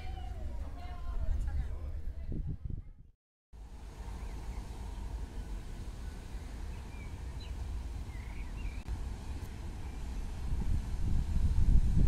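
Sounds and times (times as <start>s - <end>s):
steady low rumble: 3.6s - 12.0s
high bird chirps: 4.2s - 8.9s.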